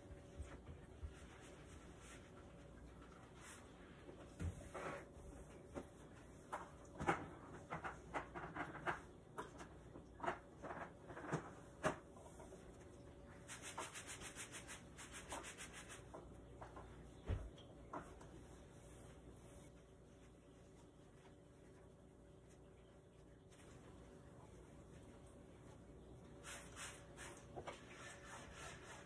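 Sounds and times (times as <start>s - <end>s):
cloth rubbing hard surface: 26.4s - 29.0s.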